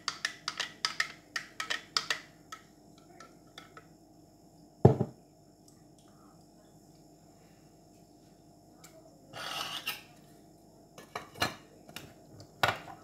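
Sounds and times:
glass set down on benchtop: 4.8s - 5.2s.

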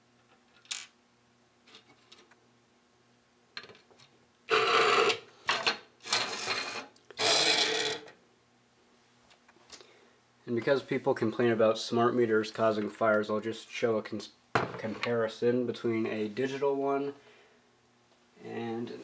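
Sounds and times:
plastic scraping on desk: 4.5s - 8.0s.

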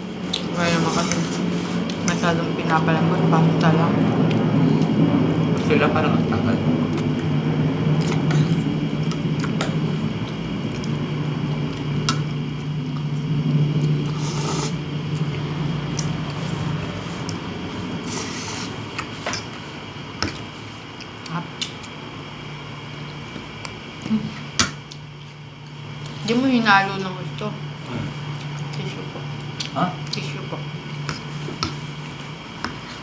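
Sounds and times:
steady low hum: 0.0s - 33.0s
person slurping and chewing: 13.7s - 19.7s.

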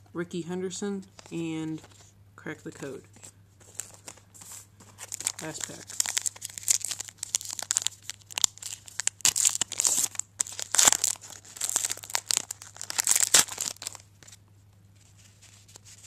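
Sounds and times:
card pack wrapper tearing and crinkling: 4.9s - 14.4s.

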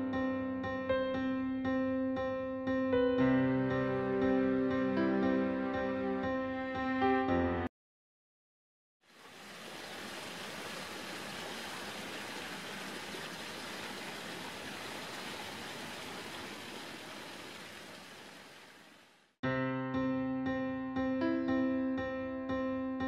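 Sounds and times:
piano music: 0.0s - 7.7s, 19.4s - 23.0s.

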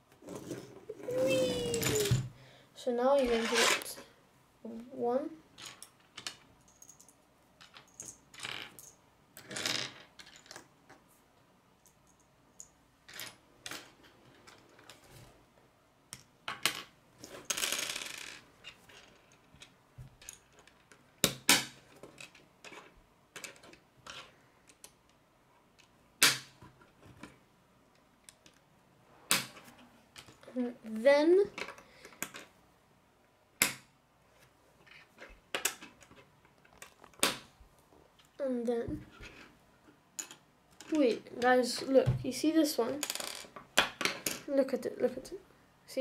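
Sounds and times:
pieces rustling: 0.2s - 2.4s, 3.2s - 4.1s.

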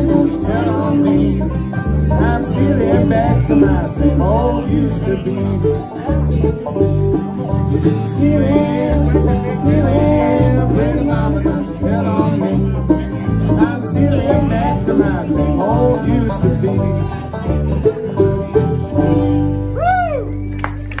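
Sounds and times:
bluegrass band playing: 0.0s - 21.0s
person whooping: 19.8s - 20.5s.

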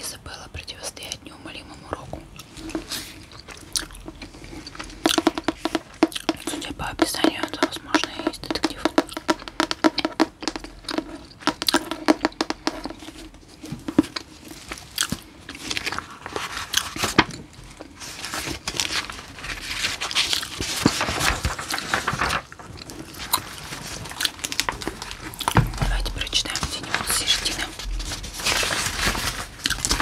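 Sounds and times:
book pages flipping: 2.4s - 30.0s
fingernails tapping book cover: 5.0s - 14.1s.

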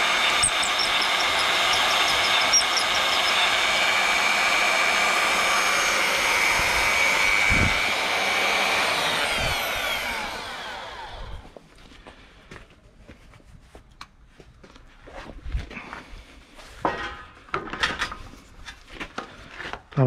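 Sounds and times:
drill motor whining: 0.0s - 11.6s.

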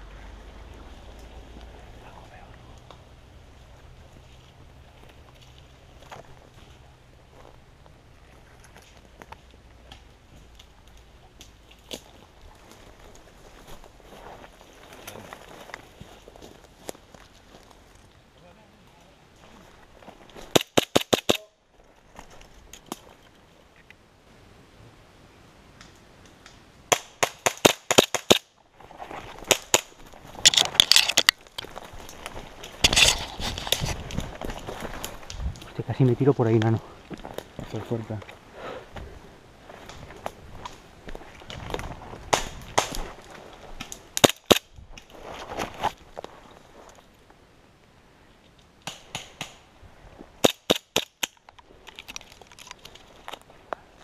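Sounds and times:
rustling through dry undergrowth: 0.0s - 24.0s, 27.9s - 54.0s
airsoft pistol firing cracks: 20.5s - 21.4s, 26.9s - 28.5s, 50.4s - 51.4s.

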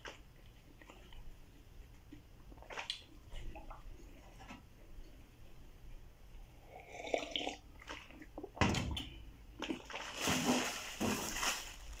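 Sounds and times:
plastic bag crinkling: 9.9s - 12.0s.

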